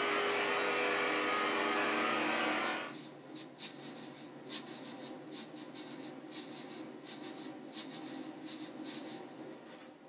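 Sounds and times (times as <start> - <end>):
lathe motor hum: 0.0 - 2.9
lathe tool scraping metal: 0.0 - 2.9.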